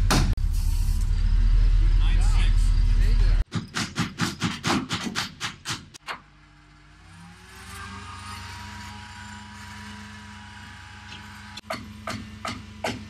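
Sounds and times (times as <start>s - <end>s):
truck engine and hydraulics running: 0.0s - 13.0s.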